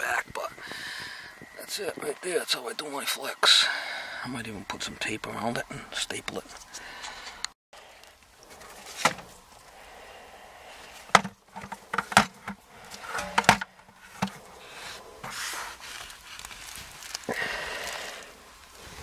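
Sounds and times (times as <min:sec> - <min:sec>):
foil duct rustling: 0:10.8 - 0:19.0.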